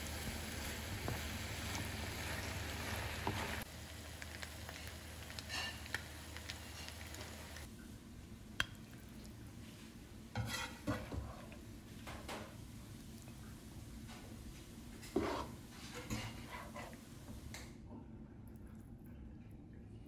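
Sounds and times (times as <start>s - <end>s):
utensil scraping and clinking on pan: 10.4s - 11.5s, 15.0s - 17.0s.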